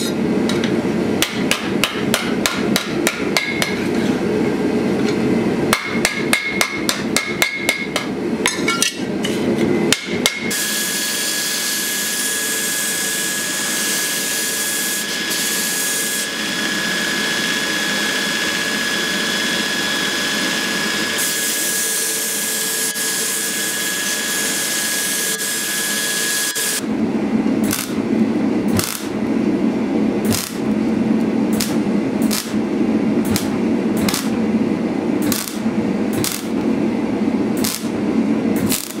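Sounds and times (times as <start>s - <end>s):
welding arc crackling: 27.6s - 28.0s, 28.7s - 29.2s, 30.3s - 30.8s, 31.6s - 32.6s, 33.2s - 34.4s, 35.2s - 36.6s, 37.6s - 38.0s, 38.6s - 39.0s.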